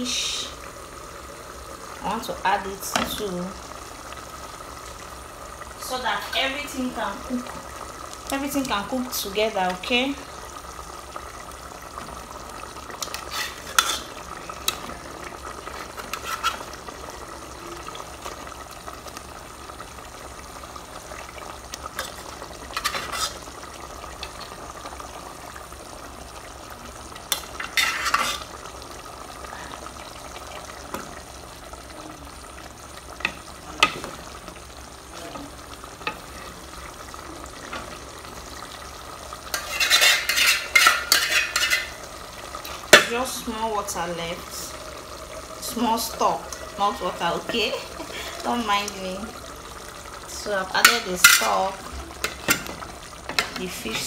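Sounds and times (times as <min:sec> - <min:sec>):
sauce bubbling in a pot: 0:00.0 - 0:54.0
metal spoon scraping a pot: 0:13.0 - 0:14.8, 0:15.7 - 0:16.7, 0:22.0 - 0:23.4, 0:27.3 - 0:28.5, 0:39.5 - 0:42.0.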